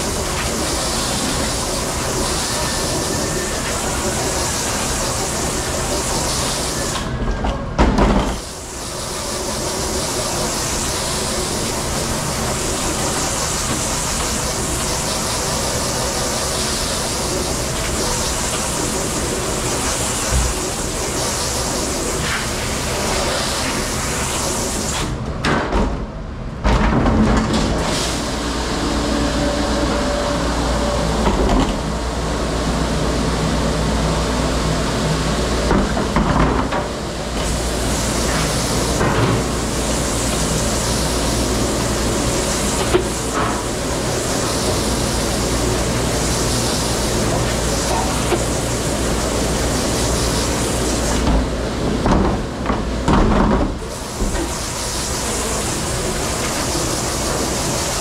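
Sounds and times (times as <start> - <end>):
water spray hissing on plastic: 0.0 - 7.1, 8.3 - 25.1, 37.0 - 51.8, 53.8 - 58.0.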